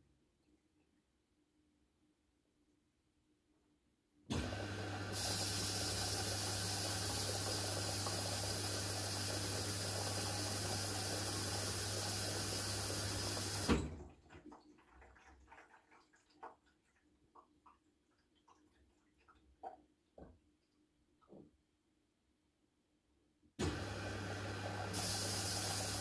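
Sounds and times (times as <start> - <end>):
water valve humming: 4.3 - 14.0, 23.6 - 26.0
water rushing into machine: 4.3 - 14.1, 23.6 - 26.0.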